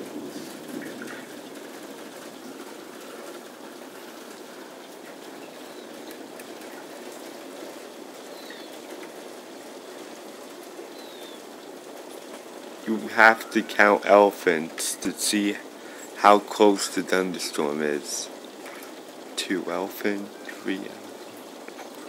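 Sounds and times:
heavy rain falling: 0:00.0 - 0:22.0.

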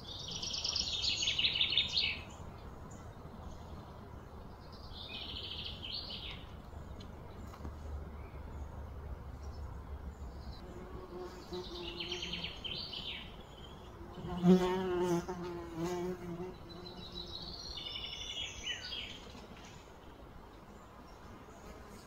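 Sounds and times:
flying insect buzzing: 0:14.0 - 0:17.4.

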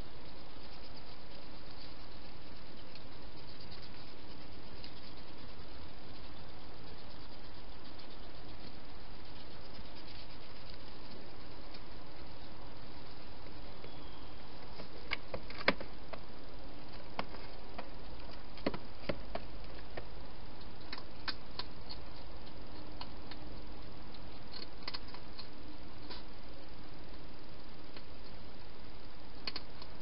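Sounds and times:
steady hiss: 0:00.0 - 0:30.0
hedgehog feeding clicks and taps: 0:16.9 - 0:25.5, 0:29.4 - 0:30.0.

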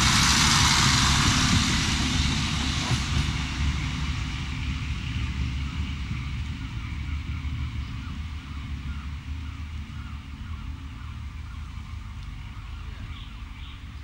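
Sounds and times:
low rumble of train: 0:00.0 - 0:14.0.

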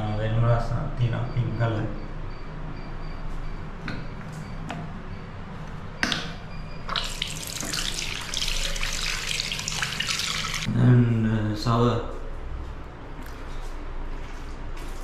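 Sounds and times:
tap water running into sink: 0:06.9 - 0:10.7.

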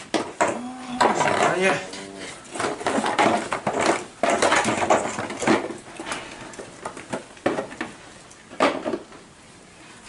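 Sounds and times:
plastic stools knocking and scraping: 0:00.0 - 0:01.9, 0:02.5 - 0:06.1, 0:06.8 - 0:09.2.

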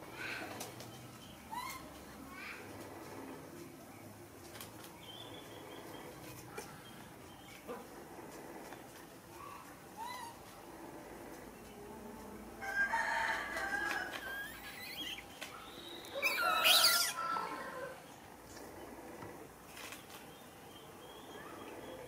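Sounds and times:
rooster crowing: 0:12.6 - 0:14.8, 0:16.1 - 0:18.0.

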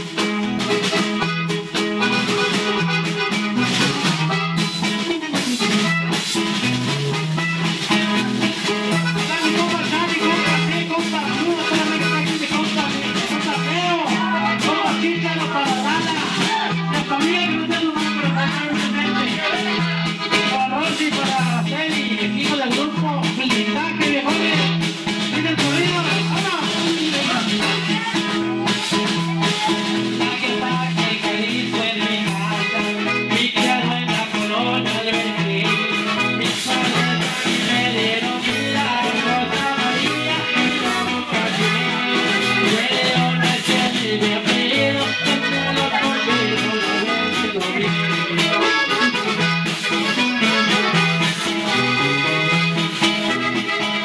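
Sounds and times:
bouncing bass line: 0:00.0 - 0:54.0
button accordion: 0:00.0 - 0:54.0
drum kit: 0:00.0 - 0:54.0
guitar: 0:00.0 - 0:54.0
man singing into a microphone: 0:00.0 - 0:54.0.

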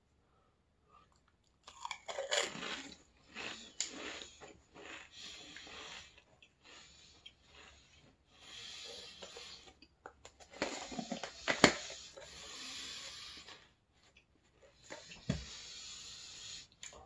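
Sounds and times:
soft hissing: 0:14.9 - 0:17.0.

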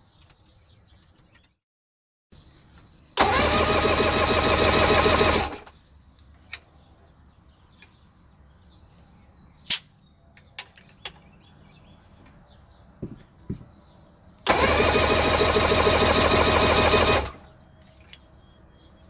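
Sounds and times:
outboard motor cranking: 0:03.2 - 0:05.7, 0:14.4 - 0:17.4.

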